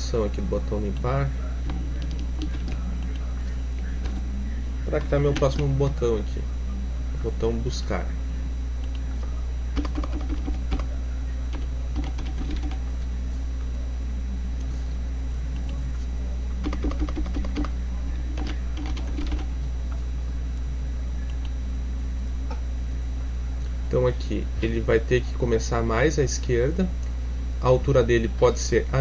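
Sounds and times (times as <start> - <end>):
low hum: 0.0 - 29.0
keyboard typing: 1.0 - 3.3, 4.0 - 4.3, 4.9 - 5.7, 9.8 - 10.9, 11.5 - 13.0, 16.6 - 19.5.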